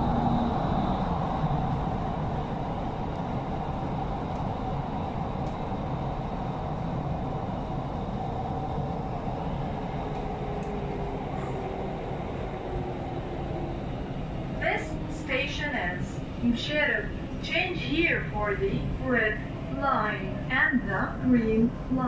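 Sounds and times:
electric train running noise: 0.0s - 22.0s.

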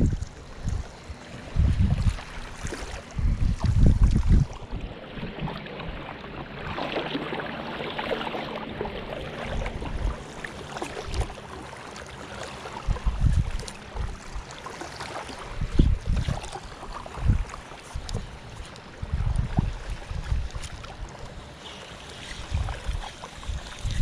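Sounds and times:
wind gusting on microphone: 0.0s - 5.7s, 12.8s - 14.5s, 15.4s - 21.2s, 22.3s - 24.0s
small waves lapping: 0.0s - 24.0s.

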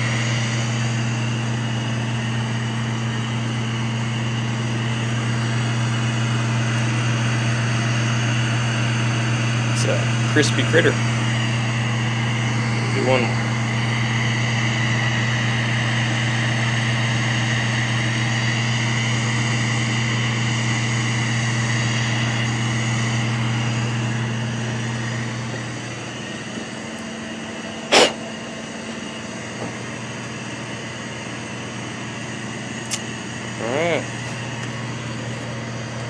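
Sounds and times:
torch flame hissing: 27.8s - 28.5s
sharp click: 32.9s - 33.1s.

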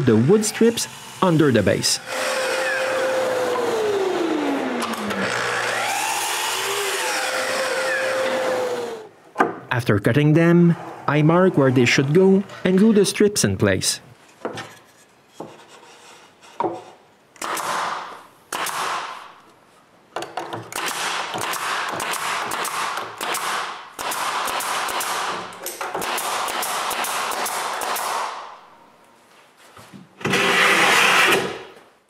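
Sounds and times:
nail gun shots: 17.4s - 19.2s, 20.7s - 28.4s.

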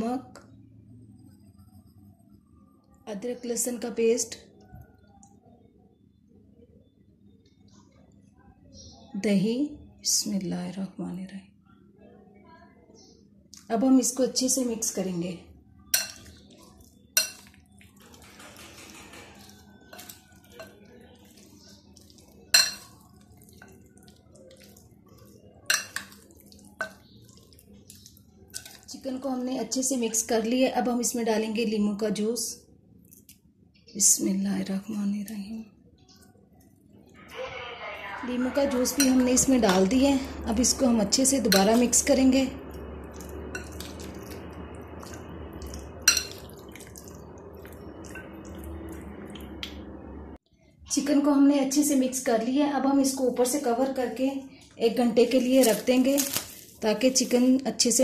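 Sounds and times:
spoon stirring thick marinade: 15.7s - 29.2s, 38.4s - 49.8s
spoon clinking against glass: 22.5s - 22.9s, 46.0s - 46.5s
metal utensil clinking on glass: 22.5s - 23.0s, 25.7s - 26.2s, 46.0s - 46.9s
steady low hum: 36.8s - 50.7s.

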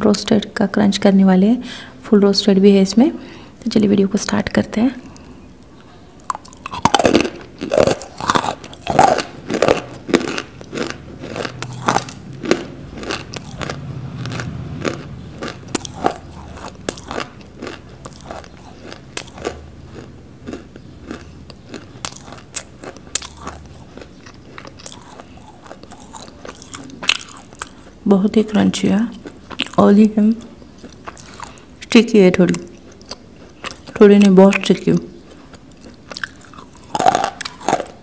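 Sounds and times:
biting and chewing clay: 6.2s - 28.0s, 29.0s - 31.7s, 32.4s - 38.0s.

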